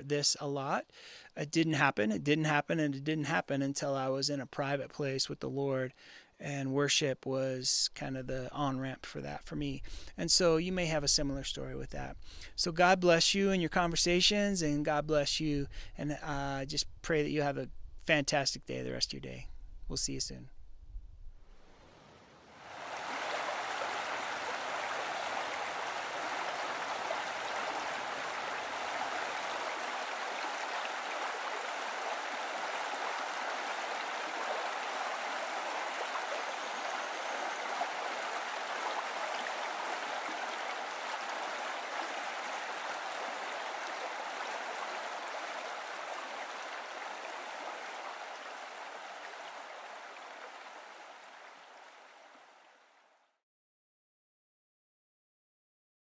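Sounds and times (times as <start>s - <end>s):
stream running over rocks: 21.8s - 53.1s.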